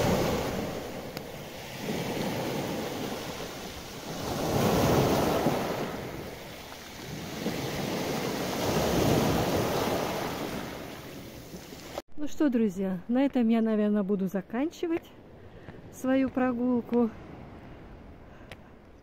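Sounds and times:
sea waves washing onto shore: 0:00.0 - 0:12.0.

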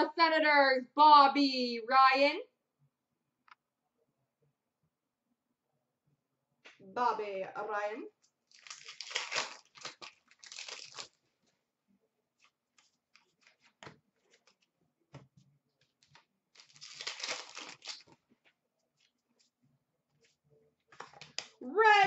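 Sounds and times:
card pack wrappers tearing and crinkling: 0:08.5 - 0:11.2, 0:16.1 - 0:18.2.

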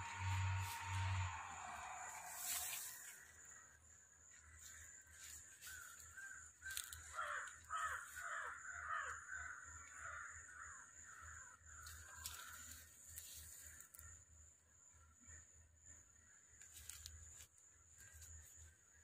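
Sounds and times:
crows cawing: 0:00.0 - 0:03.6, 0:05.6 - 0:12.9.

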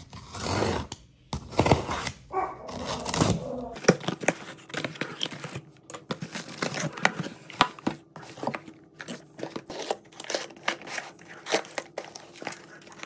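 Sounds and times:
cardboard boxes rustling: 0:03.7 - 0:13.0.

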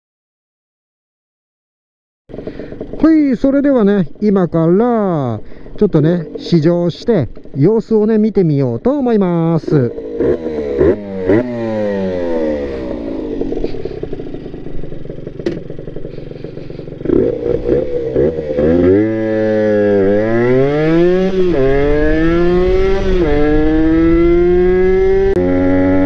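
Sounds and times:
two-stroke motorcycle engine revving: 0:02.3 - 0:26.0.

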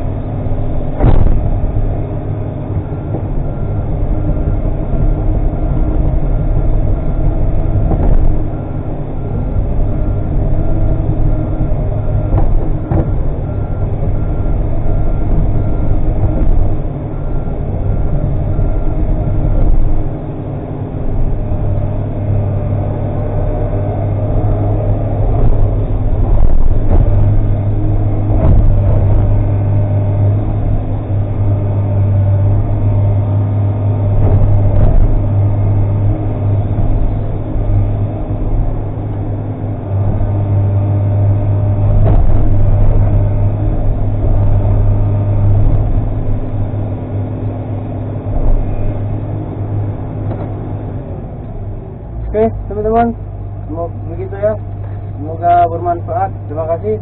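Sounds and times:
beeping alarm: 0:00.0 - 0:38.5
excavator diesel engine running: 0:00.0 - 0:57.0.

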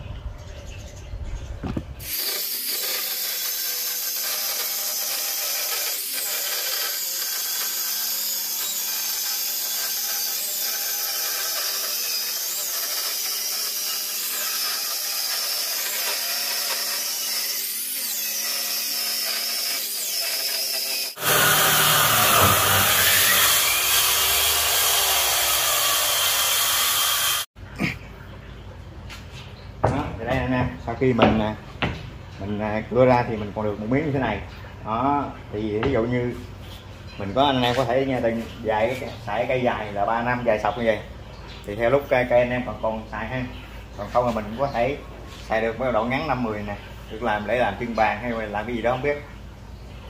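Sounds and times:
power saw cutting wood: 0:02.0 - 0:27.5.

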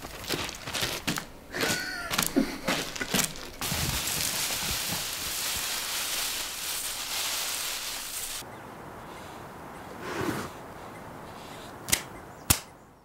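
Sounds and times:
steady hiss: 0:03.6 - 0:08.4.

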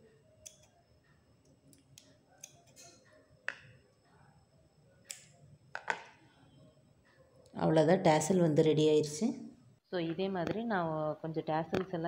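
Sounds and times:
scissors snipping thread: 0:00.4 - 0:00.7, 0:01.8 - 0:02.9.

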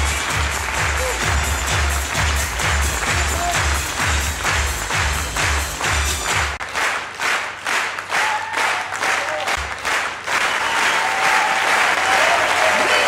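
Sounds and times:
bass notes of music: 0:00.0 - 0:06.6
audience applause: 0:00.0 - 0:13.0.

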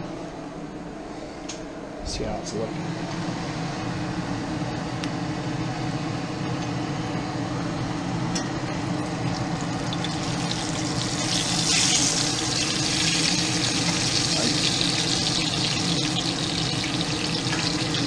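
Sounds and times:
steady low hum: 0:00.0 - 0:18.0
food sizzling in oil: 0:09.3 - 0:18.0.

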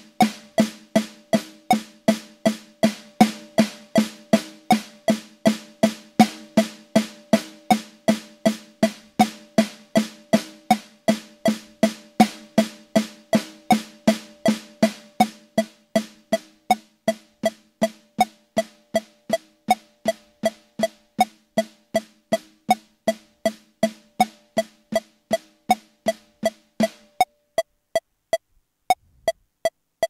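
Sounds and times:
soft taps on drum pad: 0:00.0 - 0:27.2
metronome clicking: 0:00.0 - 0:29.8.

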